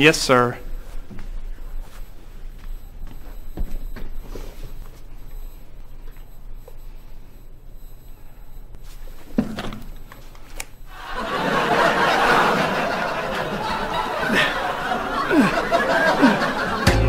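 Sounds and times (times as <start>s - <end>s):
studio audience laughter: 10.9s - 17.0s.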